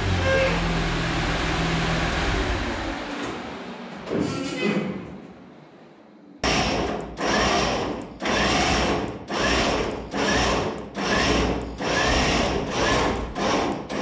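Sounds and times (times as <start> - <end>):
hand tool rasping strokes: 7.2 - 14.0.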